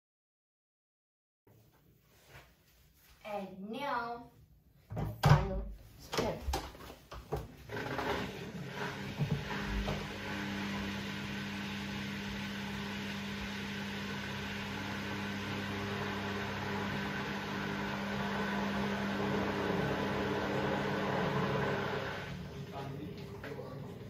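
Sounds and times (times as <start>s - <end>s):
washing machine humming: 7.4s - 24.0s.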